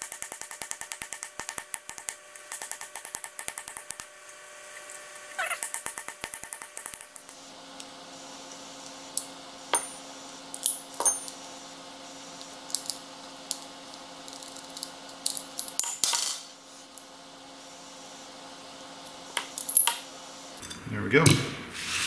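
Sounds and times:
steady low hum: 0:00.0 - 0:21.8
metal parts clinking: 0:14.3 - 0:16.5.

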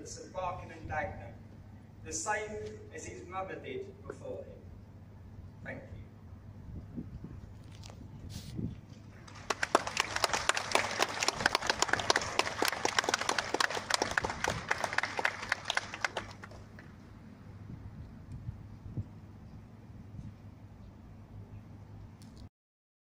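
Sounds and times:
crowd applauding: 0:09.2 - 0:17.0.

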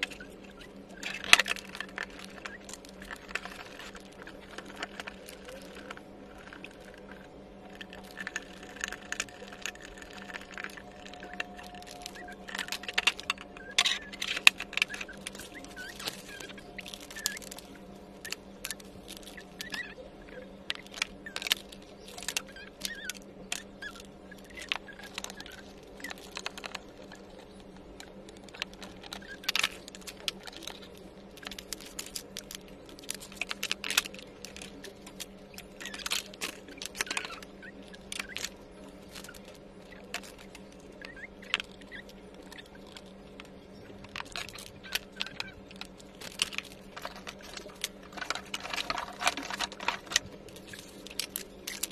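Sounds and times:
low steady hum: 0:00.0 - 0:51.9
plastic parts clicking and knocking: 0:00.0 - 0:51.9.

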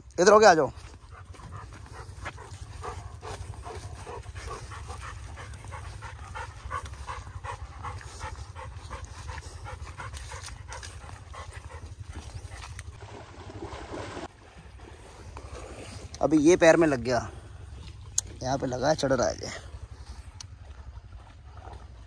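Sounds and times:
dog panting: 0:00.7 - 0:13.0.

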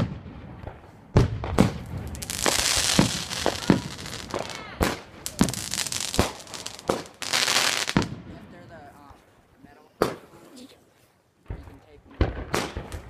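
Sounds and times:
fireworks bangs: 0:00.0 - 0:08.8, 0:11.4 - 0:13.0
fireworks hissing crackle: 0:01.7 - 0:08.1.

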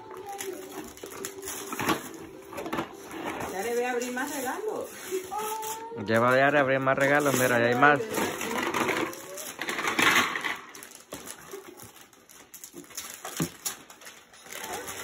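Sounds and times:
paper crackling and rustling: 0:00.0 - 0:15.0
wrapping paper tearing: 0:00.0 - 0:15.0.

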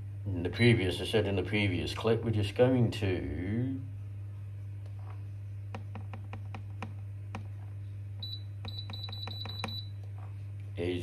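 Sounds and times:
low steady hum: 0:00.0 - 0:11.0
button tapping clicks: 0:08.6 - 0:09.8.

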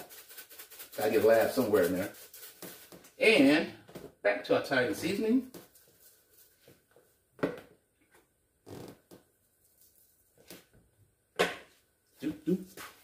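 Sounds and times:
spice shaker shaking: 0:00.0 - 0:03.2, 0:05.4 - 0:06.6.

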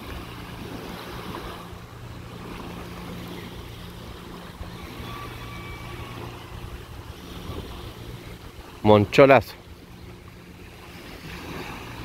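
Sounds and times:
low steady hum: 0:00.0 - 0:12.0
wind noise on microphone: 0:04.2 - 0:08.8.

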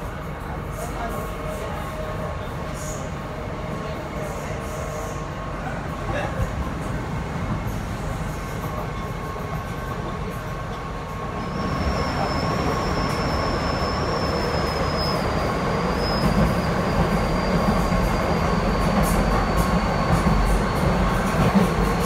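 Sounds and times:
train rumble: 0:00.0 - 0:22.0
high wheel squeal: 0:11.3 - 0:20.8.

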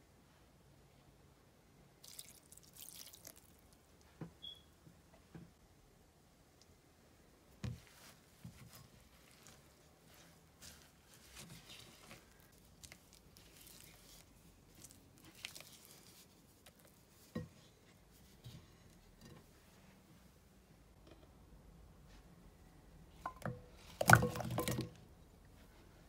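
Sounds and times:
spatula stirring thick batter: 0:08.0 - 0:19.6.

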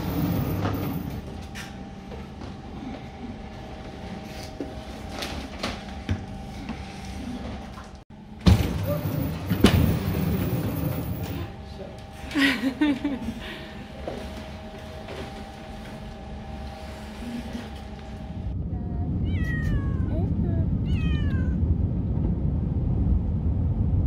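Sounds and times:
conveyor machine humming: 0:00.0 - 0:19.2.

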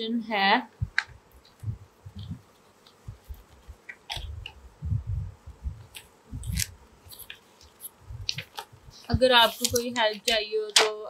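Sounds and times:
crisp crinkle: 0:05.9 - 0:10.8
paper rustling: 0:05.9 - 0:10.9.

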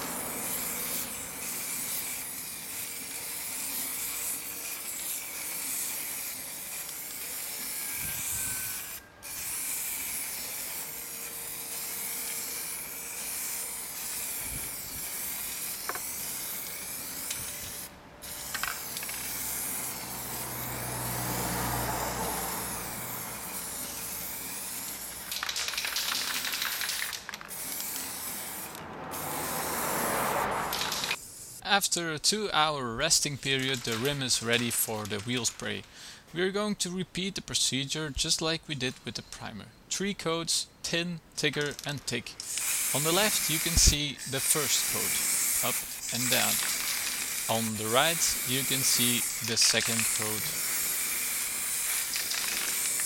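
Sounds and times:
spray can hissing: 0:00.0 - 0:31.6, 0:42.4 - 0:53.0.

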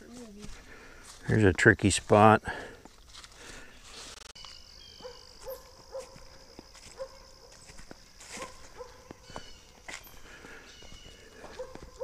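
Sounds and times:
distant dog barking: 0:05.0 - 0:07.6, 0:08.3 - 0:09.2, 0:11.4 - 0:12.0.

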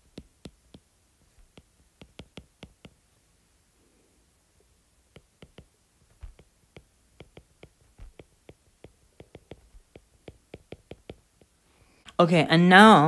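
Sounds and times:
stylus tapping on glass screen: 0:00.0 - 0:03.0, 0:05.1 - 0:11.6.

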